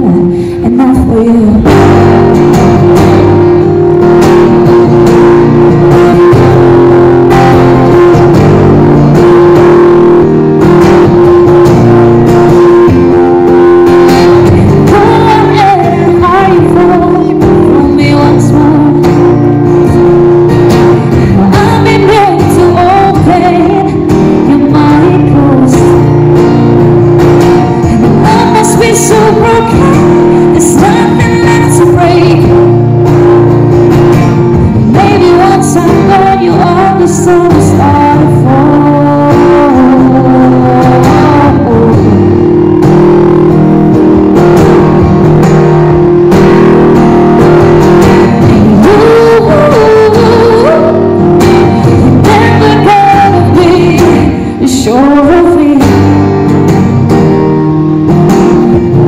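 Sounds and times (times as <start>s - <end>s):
woman singing: 0.0s - 43.6s, 47.5s - 56.5s
acoustic guitar: 0.0s - 59.0s.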